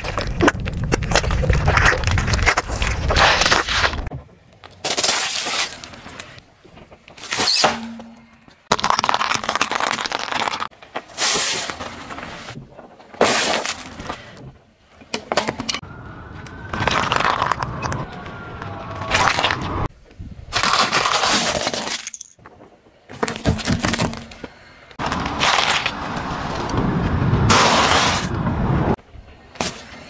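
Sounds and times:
tyre crushing objects: 8.7 - 14.4, 25.0 - 26.6.

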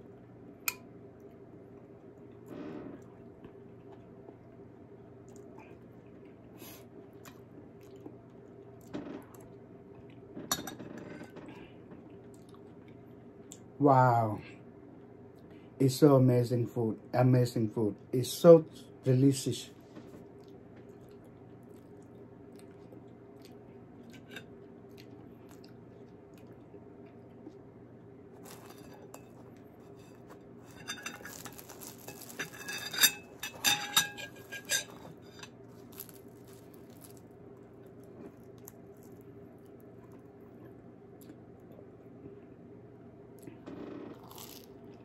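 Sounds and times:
faint room hum: 0.0 - 45.0
tableware clinking: 10.5 - 11.2, 30.6 - 35.6
bread being torn: 28.4 - 40.2, 44.2 - 44.7.

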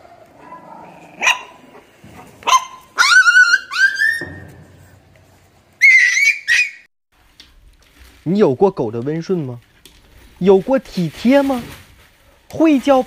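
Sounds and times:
puppy yelping whines: 0.0 - 1.7, 2.4 - 4.4, 5.8 - 6.8.

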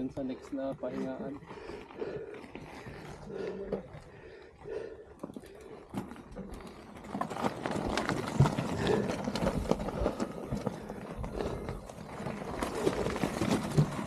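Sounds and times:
bike rattling and knocking: 0.0 - 14.0
tyres crunching on stones: 0.0 - 14.0.

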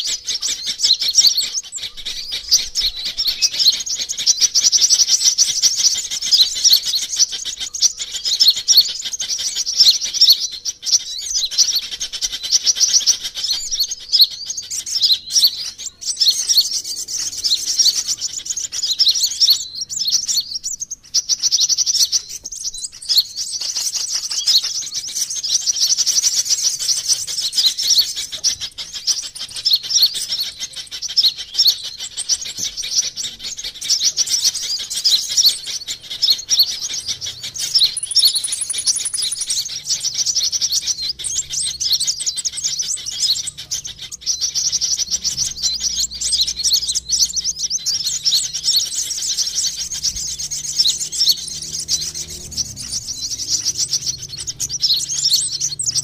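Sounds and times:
bird chirps and trills: 0.0 - 56.0.

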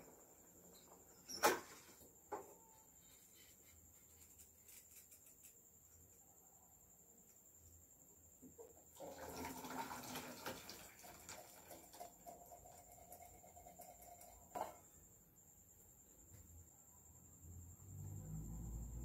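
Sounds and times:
water pouring from saucepan: 9.0 - 14.3.

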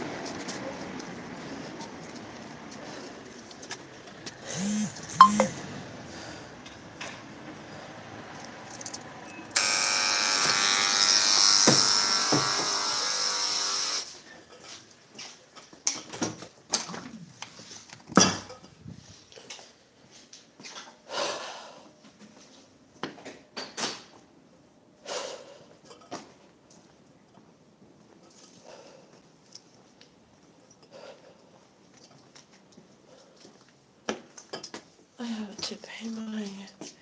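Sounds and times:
electric door buzzer: 4.4 - 5.7, 9.5 - 14.1.

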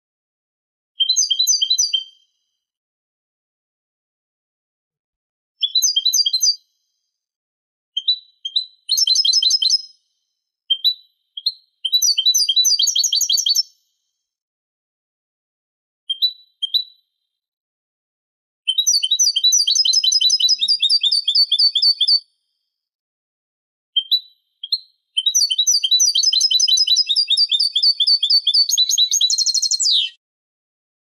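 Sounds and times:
goldfinch twittering song: 1.0 - 2.2, 8.0 - 10.0, 10.7 - 13.7, 18.7 - 22.2, 24.0 - 30.2.

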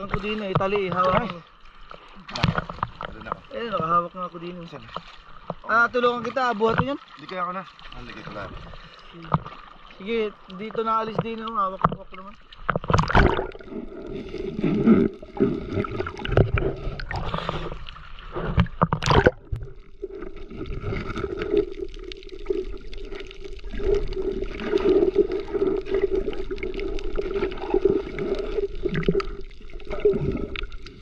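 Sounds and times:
water sloshing around boat: 0.0 - 21.7.

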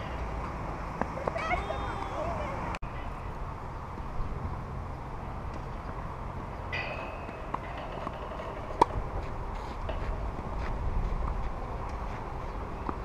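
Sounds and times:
outdoor background noise: 0.0 - 13.0
tennis racket hitting ball: 6.8 - 10.2.

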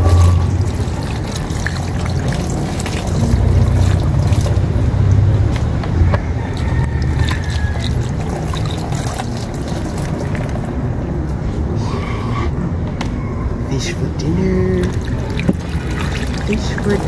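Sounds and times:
water pouring over fish: 0.0 - 5.0, 6.6 - 10.7, 14.9 - 17.0
steady low rumble: 0.0 - 16.0.

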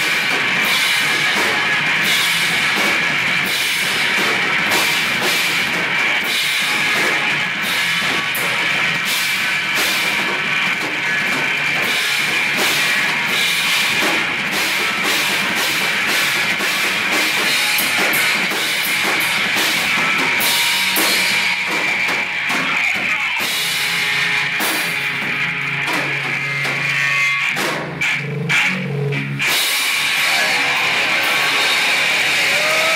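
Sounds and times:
electric guitar: 0.0 - 32.9
pounding drum kit: 0.0 - 32.9
crashing cymbals: 11.9 - 22.0, 29.4 - 32.9.

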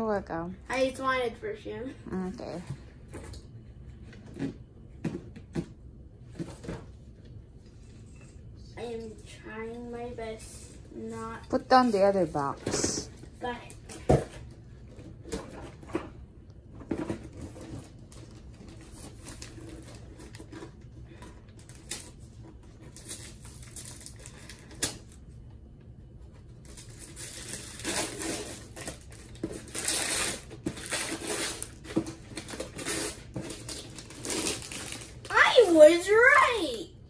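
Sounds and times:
paper ripping and crinkling: 26.6 - 35.4.

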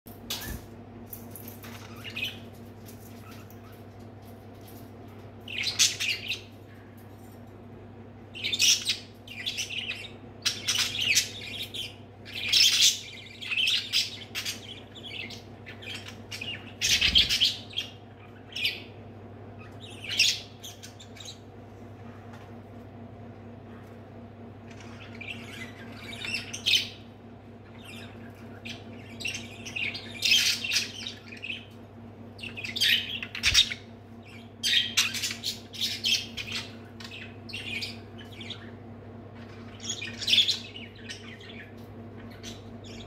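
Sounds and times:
steady low hum: 0.1 - 43.0
budgerigars chirping and squawking: 5.4 - 6.6, 8.4 - 21.5, 24.7 - 43.0.

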